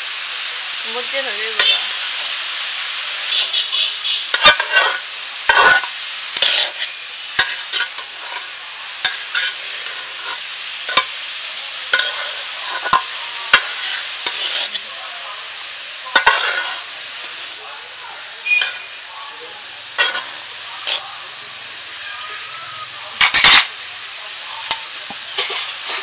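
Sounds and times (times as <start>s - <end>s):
onions sizzling in oil: 0.0s - 26.0s
metal spatula scraping pan: 1.6s - 1.8s, 4.3s - 11.1s, 11.9s - 14.9s, 16.1s - 16.9s, 18.5s - 19.0s, 20.0s - 21.1s, 23.2s - 23.7s, 24.6s - 26.0s.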